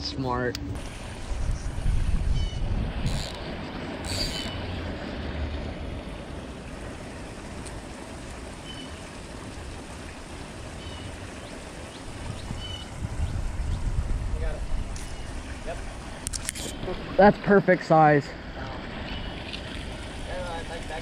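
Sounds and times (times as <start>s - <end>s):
wind buffeting microphone: 0.7s - 7.9s, 11.8s - 17.2s
creek water rushing: 0.8s - 21.0s.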